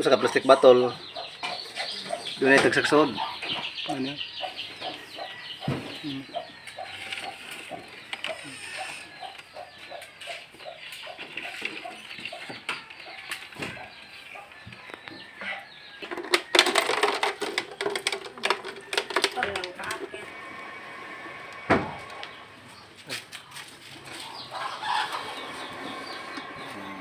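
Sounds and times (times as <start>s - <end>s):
hen clucking: 0.0s - 16.3s, 23.5s - 27.0s
plastic bottles clicking: 16.0s - 20.2s.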